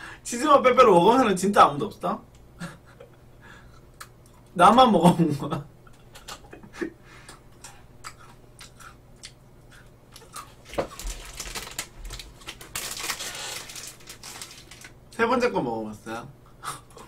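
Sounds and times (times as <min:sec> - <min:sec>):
plastic wrapper crinkling: 0:10.2 - 0:15.0.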